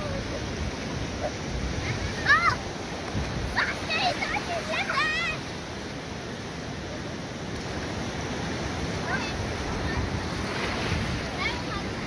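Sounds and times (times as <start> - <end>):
surf washing on beach: 0.0 - 12.0.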